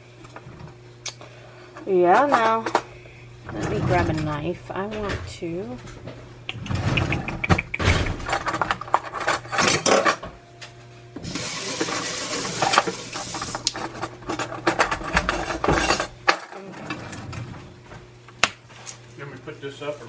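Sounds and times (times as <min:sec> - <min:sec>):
dishes and utensils clattering: 0:01.9 - 0:02.9, 0:03.5 - 0:10.3, 0:11.3 - 0:17.5
steady hiss: 0:11.2 - 0:13.5.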